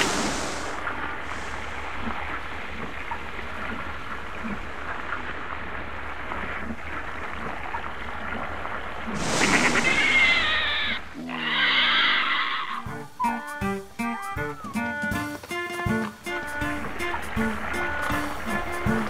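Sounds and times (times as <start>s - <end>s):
stream water gurgling: 0.0s - 13.2s, 15.9s - 19.0s
harsh animal cry: 9.1s - 15.0s.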